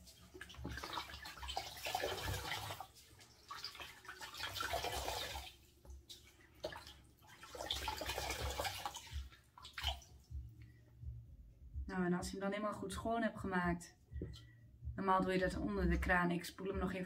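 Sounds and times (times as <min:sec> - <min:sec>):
water sloshing and dripping: 0:00.0 - 0:11.1.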